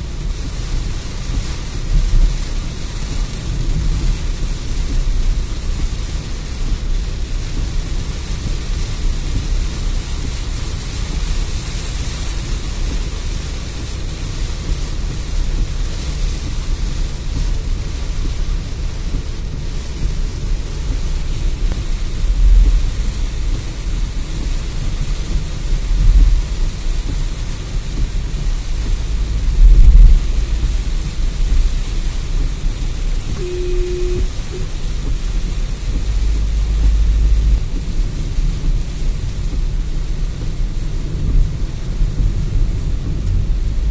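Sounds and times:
heavy rain on a car: 0.0s - 43.9s
steady low rumble: 0.0s - 43.9s.

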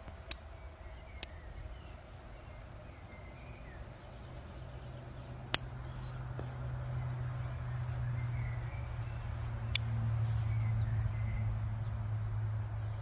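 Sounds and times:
pocket knife blade clicks: 0.2s - 0.5s, 1.1s - 1.4s, 5.5s - 5.8s, 9.6s - 10.0s.

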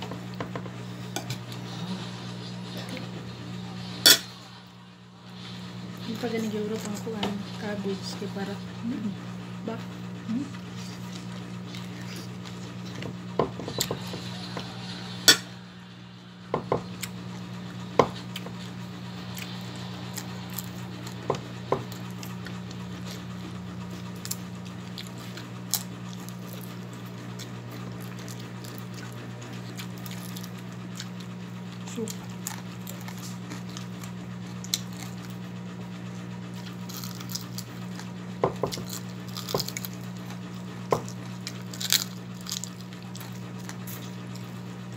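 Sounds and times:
low hum: 0.0s - 44.9s
chewing: 10.5s - 13.1s, 18.2s - 31.4s, 32.0s - 35.5s, 36.5s - 44.7s.

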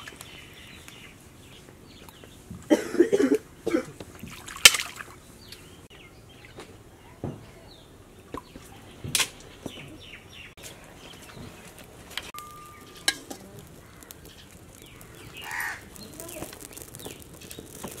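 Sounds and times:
pond water splashing: 4.1s - 5.2s.

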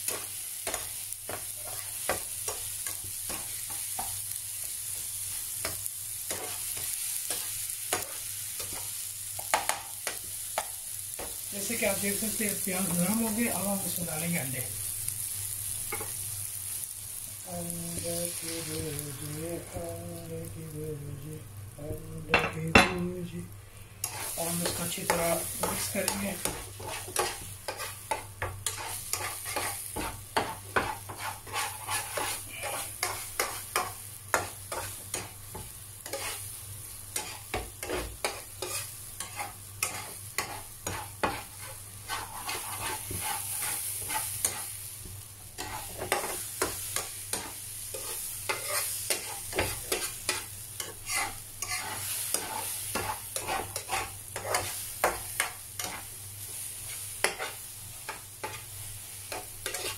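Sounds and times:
eggs sizzling: 0.0s - 59.9s
metal spatula scraping a pan: 24.0s - 35.3s, 36.0s - 36.4s, 37.2s - 44.7s, 45.6s - 56.1s, 56.8s - 59.9s.

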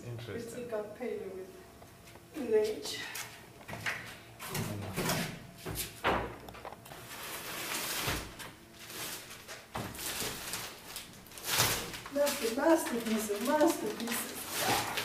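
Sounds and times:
plastic sheeting crinkling: 6.9s - 15.0s.

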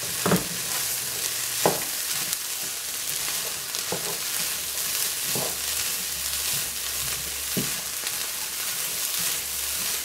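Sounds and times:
food sizzling in skillet: 0.0s - 10.0s
spatula scraping pan: 2.0s - 10.0s
spatula knocking pan: 6.5s - 8.0s.

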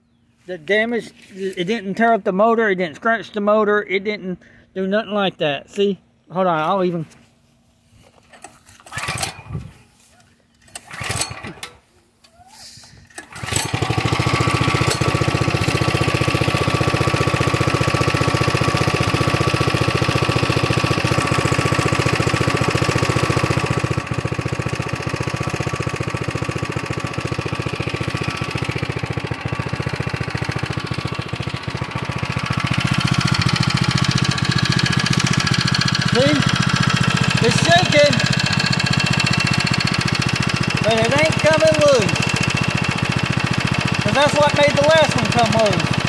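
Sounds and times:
small engine pull-started: 8.2s - 9.8s, 10.5s - 11.8s, 13.0s - 46.0s
small engine running: 10.7s - 11.7s, 13.2s - 46.0s.

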